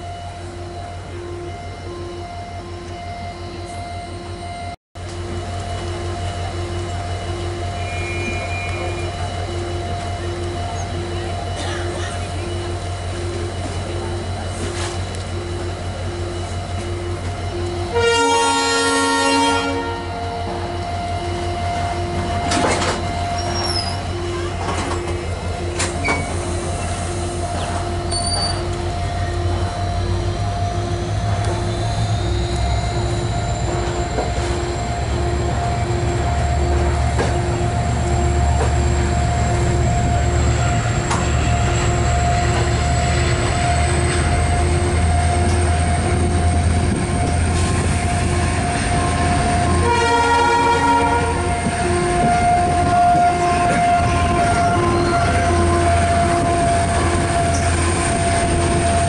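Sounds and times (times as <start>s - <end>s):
train engine hum: 0.0s - 59.0s
steady whine: 18.9s - 59.0s.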